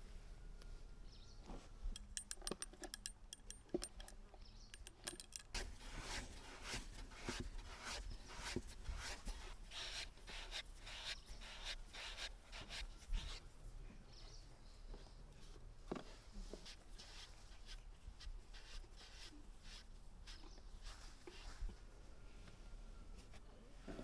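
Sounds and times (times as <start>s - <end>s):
light clicks and clinks: 1.9s - 5.6s.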